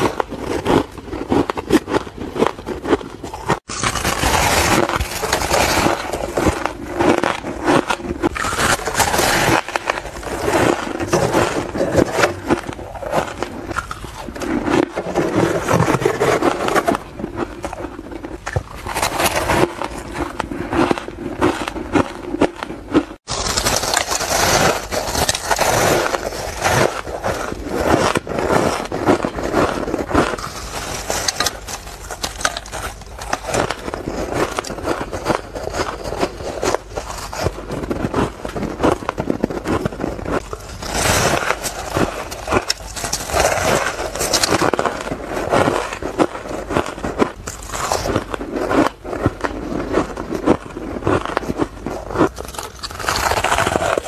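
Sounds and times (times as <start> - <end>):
crunching and chewing ice: 0.0 - 54.0.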